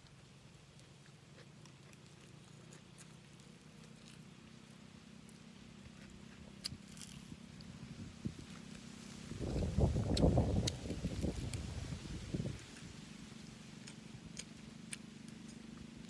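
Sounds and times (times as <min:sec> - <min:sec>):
faint low hum: 0:00.0 - 0:16.0
meat pulled apart and chewed: 0:00.7 - 0:04.4, 0:05.8 - 0:07.7, 0:09.4 - 0:12.9.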